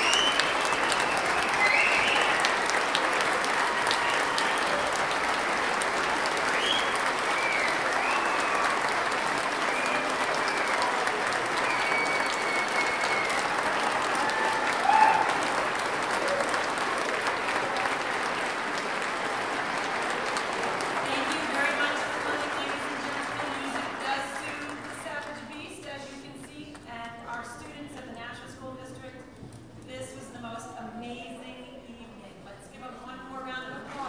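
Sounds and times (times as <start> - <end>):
whistles: 0.0 - 2.5, 6.4 - 8.9, 9.6 - 13.6
cheering calls: 0.0 - 24.9
audience applauding: 0.0 - 25.7.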